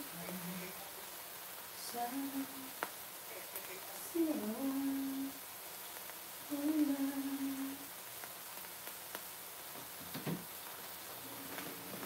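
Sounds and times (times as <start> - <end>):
faint steady hiss: 0.0 - 12.0
woman humming: 6.5 - 7.8.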